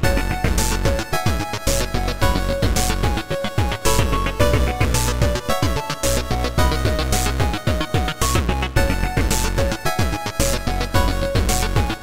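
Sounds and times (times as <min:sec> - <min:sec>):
chiptune background music: 0:00.0 - 0:12.0.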